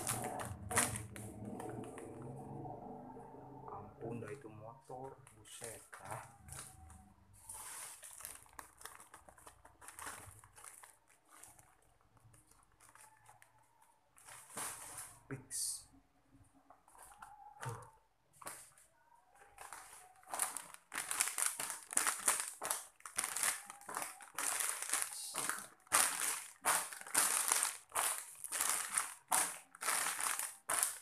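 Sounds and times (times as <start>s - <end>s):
plastic snack packets crinkling: 0.0s - 2.6s, 5.0s - 15.2s, 19.4s - 31.0s.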